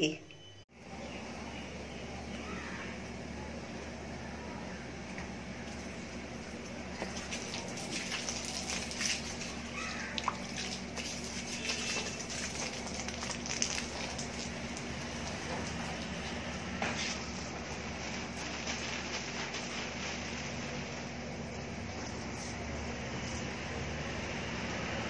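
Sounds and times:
hose spraying water on plants: 0:05.6 - 0:25.0.

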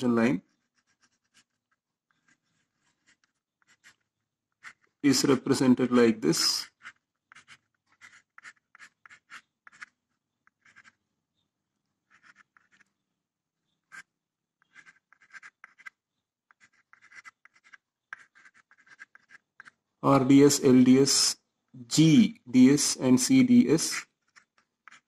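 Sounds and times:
chalk scratching on blackboard: 0:00.6 - 0:05.4, 0:06.3 - 0:11.0, 0:12.1 - 0:12.9, 0:13.9 - 0:19.8, 0:23.8 - 0:25.0.

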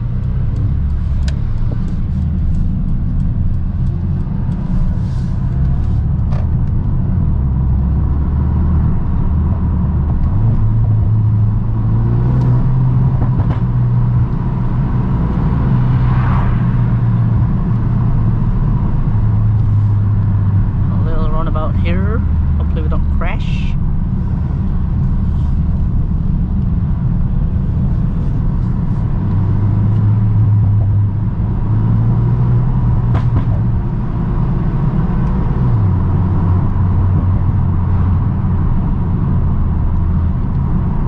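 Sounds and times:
car engine droning in cabin: 0:00.0 - 0:41.0
tyre and road rumble: 0:00.0 - 0:41.0.

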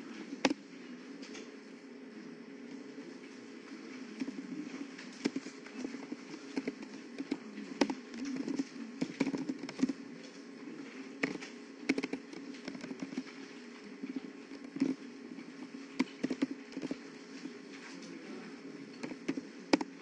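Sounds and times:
low background hum: 0:00.0 - 0:20.0
keyboard typing: 0:04.2 - 0:10.5, 0:11.1 - 0:17.1.

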